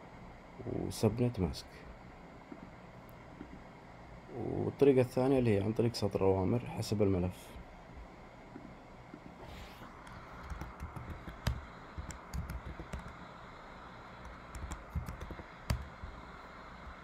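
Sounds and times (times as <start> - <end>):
typing on computer keyboard: 10.1 - 13.2, 14.2 - 15.9.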